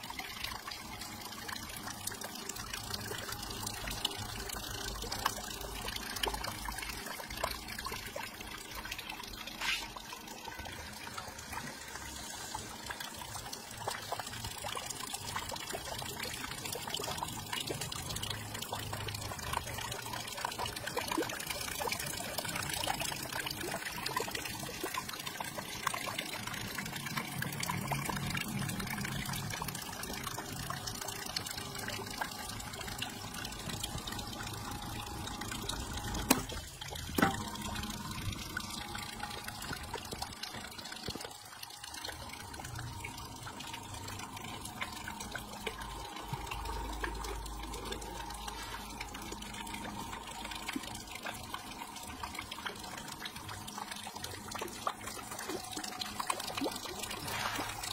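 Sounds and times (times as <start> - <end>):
water splashing and trickling: 0.0 - 57.9.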